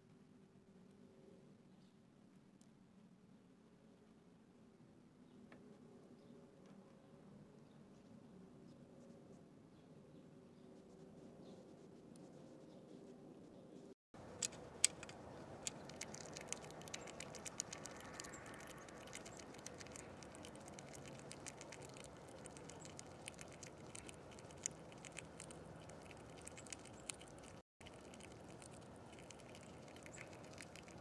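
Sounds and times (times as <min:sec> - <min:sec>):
light taps and clicks at feeder: 0:14.4 - 0:31.0.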